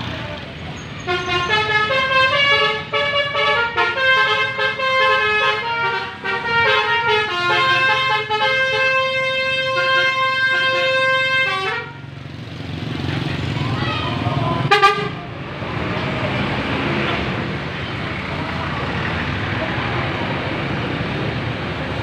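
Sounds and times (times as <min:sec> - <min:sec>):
low bus engine rumble: 0:00.0 - 0:22.0
bus horn playing a melody: 0:01.0 - 0:12.1, 0:14.6 - 0:15.2.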